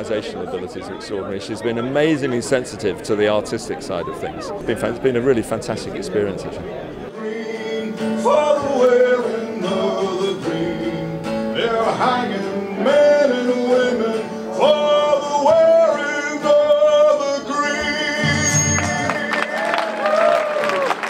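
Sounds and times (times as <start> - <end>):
man singing through pa: 7.1 - 20.2.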